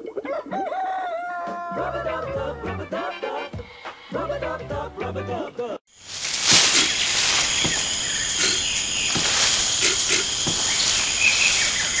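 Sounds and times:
hiss: 5.9 - 12.0
insects trilling: 5.9 - 12.0.

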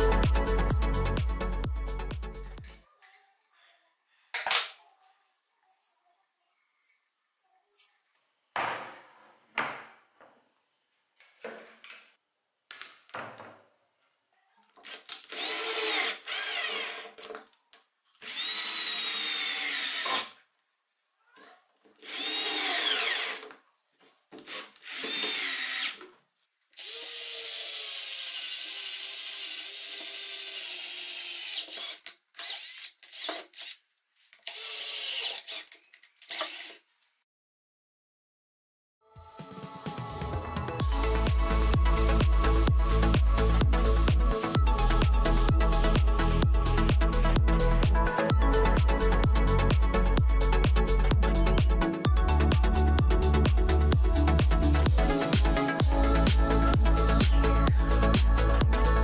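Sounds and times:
electric drill whining: 14.9 - 17.2, 18.2 - 20.3, 22.0 - 23.5, 24.4 - 26.0, 26.8 - 33.8, 34.4 - 36.8.

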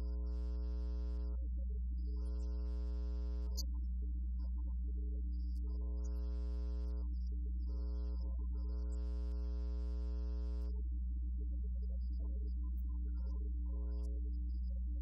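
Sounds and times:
electrical hum: 0.0 - 1.3, 5.6 - 10.8.

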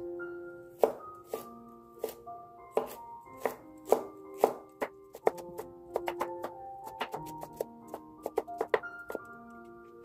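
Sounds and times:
soft background music: 0.0 - 10.0
cleaver chopping on wooden board: 2.8 - 9.3.

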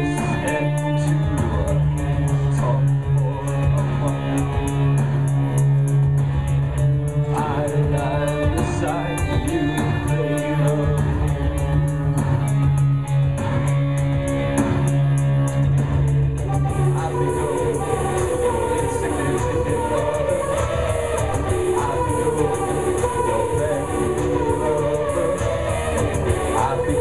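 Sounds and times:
person singing: 0.0 - 5.0, 7.2 - 11.4, 16.5 - 27.0
electric guitar: 0.0 - 27.0
synthesizer bass line: 0.0 - 27.0.

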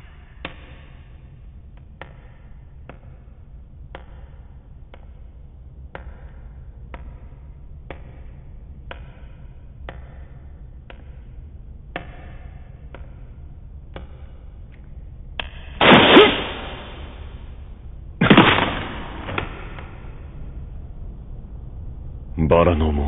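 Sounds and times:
heavy booming impacts: 15.8 - 17.5, 18.2 - 20.3.

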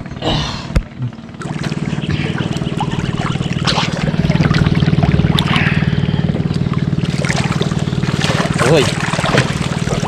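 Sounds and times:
low engine drone: 0.0 - 10.0
water sloshing and trickling: 0.0 - 10.0.

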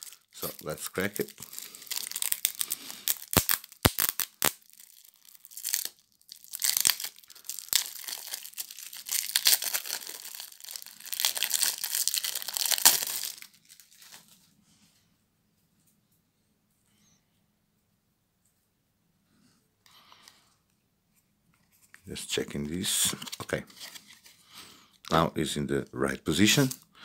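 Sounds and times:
plastic wrap crinkling and tearing: 0.0 - 14.4, 22.2 - 24.5, 26.4 - 26.9.

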